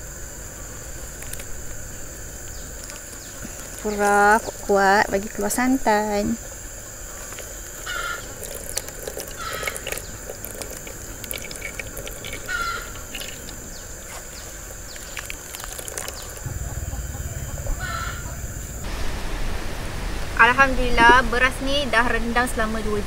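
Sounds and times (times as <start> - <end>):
insect high whine: 0.0 - 22.7
coconut squeezed with crackling clicks: 1.1 - 1.8, 7.2 - 16.6
coconut milk dripping into bowl: 1.1 - 6.1, 7.0 - 18.7
bird calling: 1.8 - 18.9
low rumble: 16.3 - 20.8.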